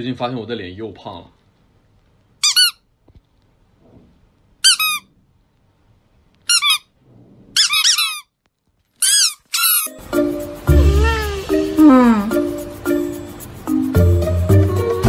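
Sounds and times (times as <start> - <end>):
squeaky toy squeaks: 2.4 - 2.9, 4.6 - 5.1, 6.5 - 7.0, 7.6 - 8.4, 9.0 - 10.0, 10.7 - 11.6.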